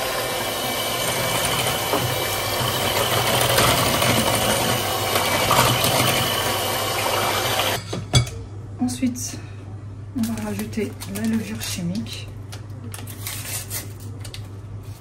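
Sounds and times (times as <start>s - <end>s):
electric hand mixer whisking: 0.0s - 7.8s.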